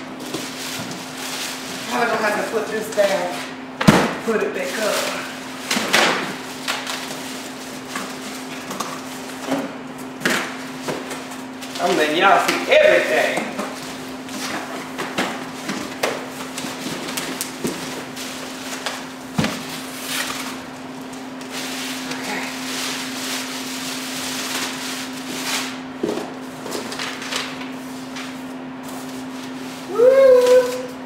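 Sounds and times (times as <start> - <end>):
plastic bag rustling: 4.3 - 5.6, 15.4 - 25.9.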